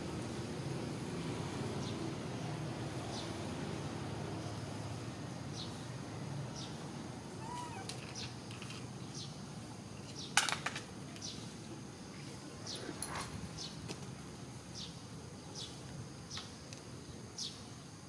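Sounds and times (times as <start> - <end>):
low background noise: 0.0 - 18.0
high chirping animal calls: 7.4 - 8.0.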